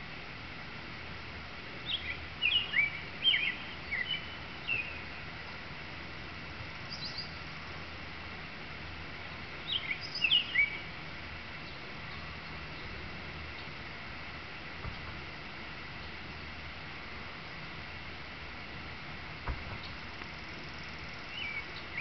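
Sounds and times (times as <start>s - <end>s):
steady background hiss: 0.0s - 22.0s
robin singing: 1.8s - 5.2s, 6.8s - 7.6s, 9.6s - 11.0s, 19.5s - 22.0s.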